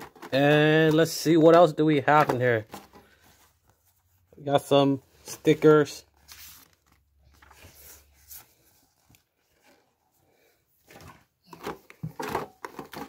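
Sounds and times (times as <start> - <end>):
paper sticker sheets rustling: 5.2 - 9.3.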